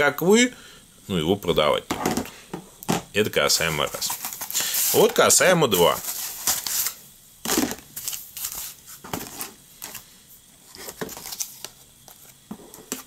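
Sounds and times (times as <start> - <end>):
plastic blister packs crinkling: 3.6 - 10.0, 10.7 - 13.0.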